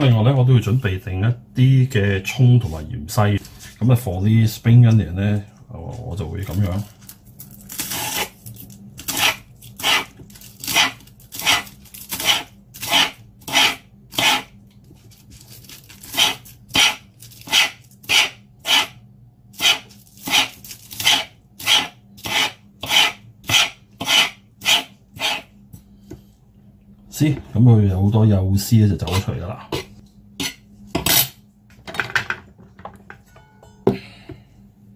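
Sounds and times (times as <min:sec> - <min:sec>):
fork scraping spring onions: 0:09.1 - 0:14.5, 0:15.3 - 0:18.9, 0:19.6 - 0:25.5.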